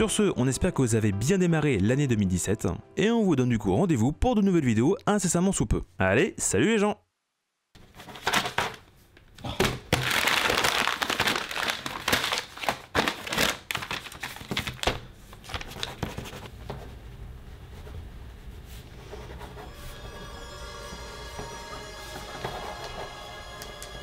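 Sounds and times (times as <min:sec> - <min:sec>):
paper rustling and crinkling: 0:07.8 - 0:16.9.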